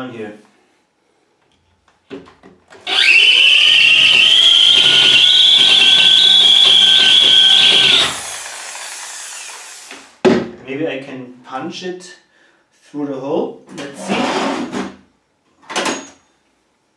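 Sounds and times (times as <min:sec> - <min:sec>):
electric drill whining: 0:02.8 - 0:10.2
drill bit knocking: 0:02.9 - 0:09.7.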